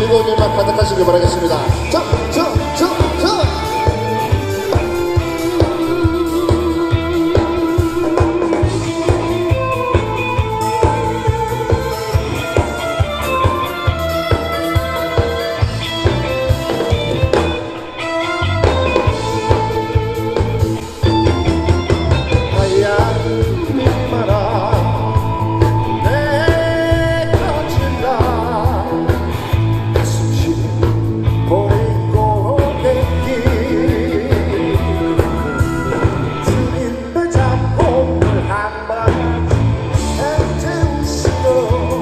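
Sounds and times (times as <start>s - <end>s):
man singing: 0.0s - 13.1s, 22.2s - 42.0s
live rock band playing: 0.0s - 42.0s.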